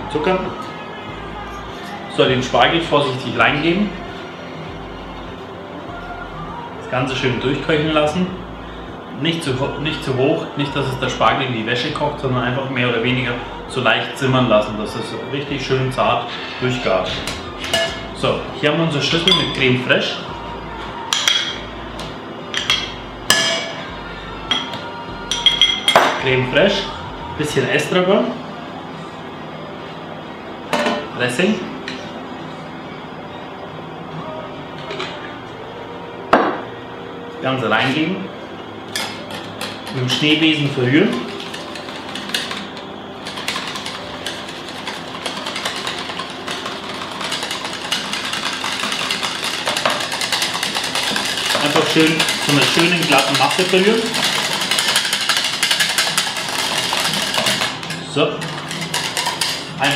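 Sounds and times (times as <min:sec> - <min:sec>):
spoon clinking against bowl: 0:24.5 - 0:26.2
whisk beating in glass bowl: 0:39.4 - 0:59.9.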